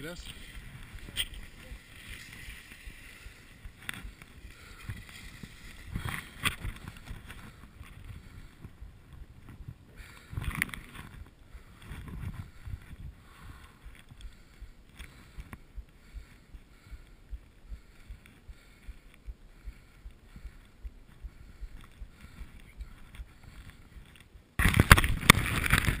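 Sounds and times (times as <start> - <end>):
skis and poles knocking and rustling: 0.0 - 12.8, 21.8 - 26.0.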